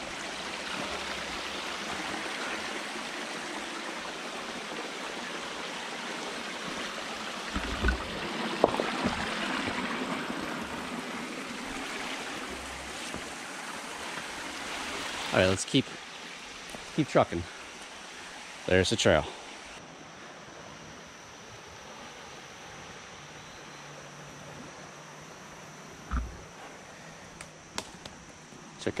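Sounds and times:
stream running over stones: 0:00.0 - 0:19.8.

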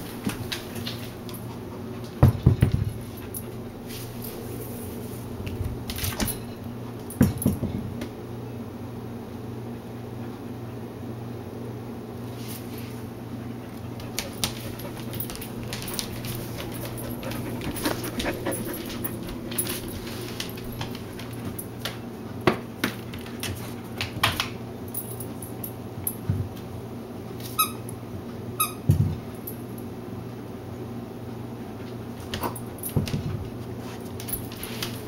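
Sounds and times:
puppy whining: 0:14.7 - 0:20.0.

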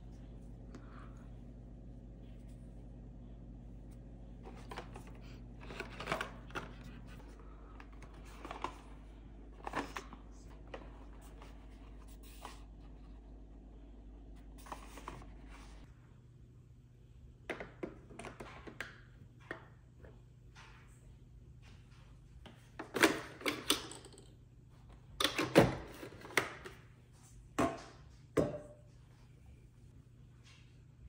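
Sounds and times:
steady low hum: 0:00.0 - 0:17.5.

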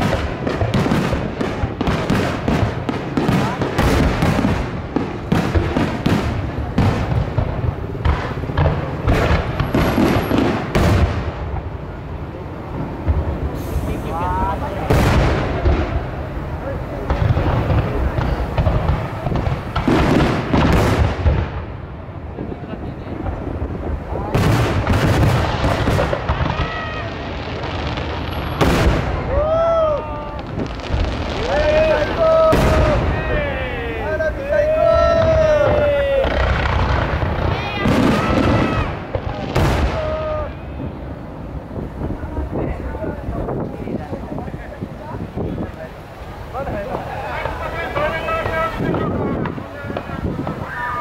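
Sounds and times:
firework shells bursting: 0:00.0 - 0:11.6
fireworks bangs and crackling: 0:00.0 - 0:51.0.

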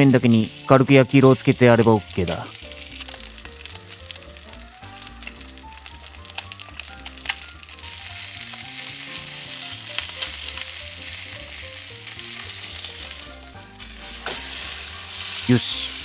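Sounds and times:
chicken sizzling in a frying pan: 0:00.0 - 0:16.0
spatula working in pan: 0:07.2 - 0:16.0.

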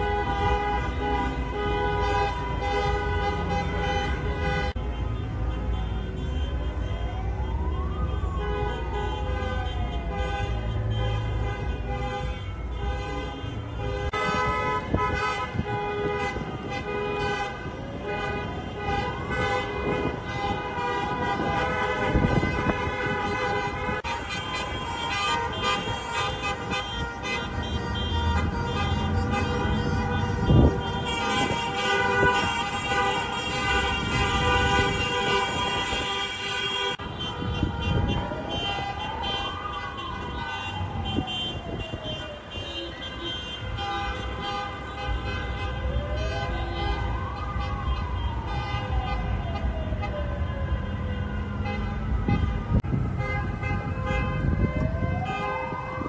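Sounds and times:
car horns honking: 0:00.0 - 0:56.0
siren wailing: 0:06.7 - 0:10.9, 0:37.0 - 0:43.3, 0:45.8 - 0:53.2, 0:53.8 - 0:56.0.

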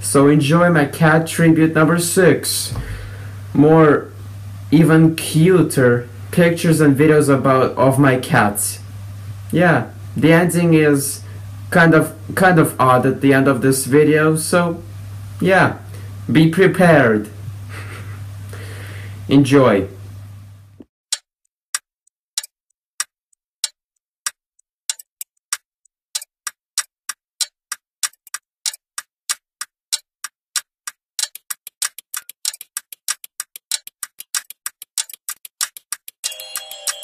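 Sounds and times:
sharp ticking clicks: 0:21.1 - 0:21.8, 0:22.4 - 0:37.0
electronic music: 0:36.2 - 0:37.0.

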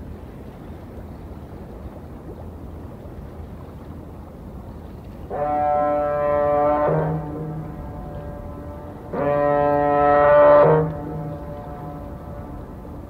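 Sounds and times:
low harbour rumble: 0:00.0 - 0:13.0
ship's siren blast: 0:05.3 - 0:13.0.

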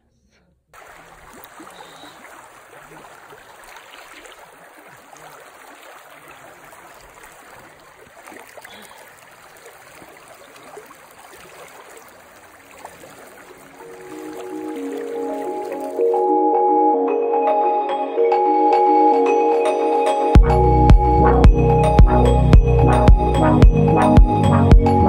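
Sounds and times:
stream rushing over stones: 0:00.8 - 0:16.2.

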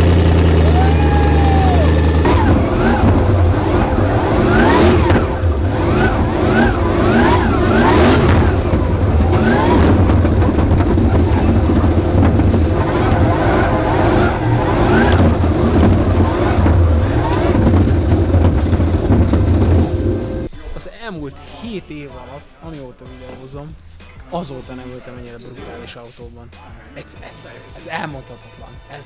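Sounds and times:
car engine revving: 0:00.0 - 0:20.5
exhaust cracks: 0:00.0 - 0:24.0.

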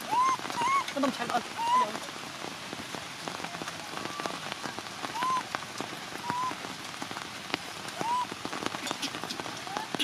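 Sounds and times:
heavy rain: 0:00.0 - 0:10.0
water dripping: 0:00.0 - 0:10.0
baby monkey crying: 0:00.1 - 0:00.9, 0:01.6 - 0:01.9, 0:05.2 - 0:05.4.

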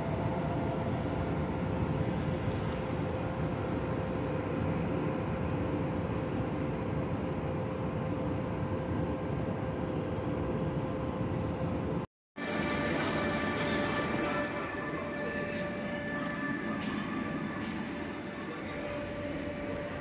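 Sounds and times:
constant train hum: 0:00.0 - 0:20.0
train running rumble: 0:12.4 - 0:20.0.

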